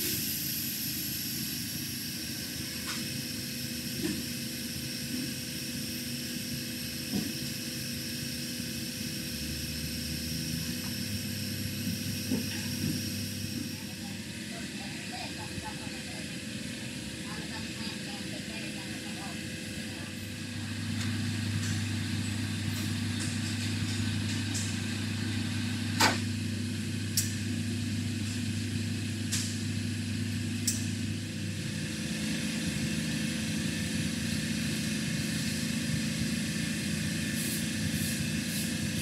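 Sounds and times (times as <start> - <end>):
deep machine drone: 6.6 - 39.0
machine mechanical hum: 19.3 - 39.0.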